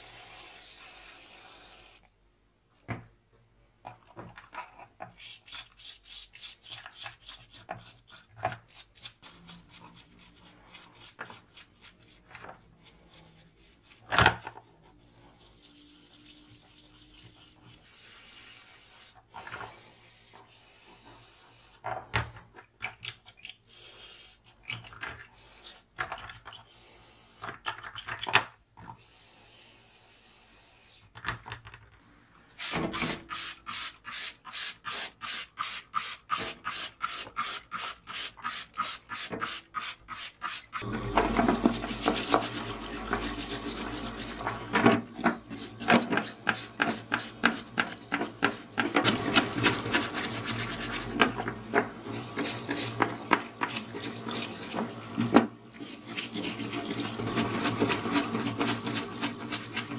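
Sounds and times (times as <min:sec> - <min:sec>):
brush scrubbing plastic: 0:05.1 - 0:21.8, 0:32.6 - 0:59.9.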